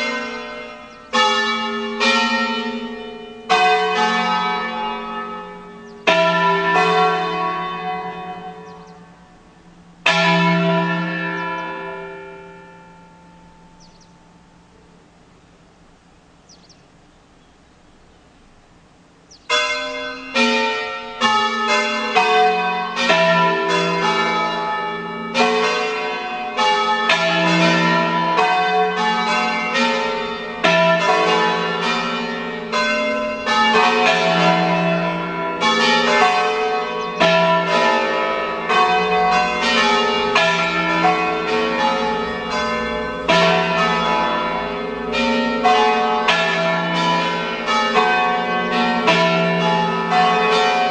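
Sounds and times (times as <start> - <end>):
church bells ringing: 0.0 - 15.3, 19.4 - 50.9.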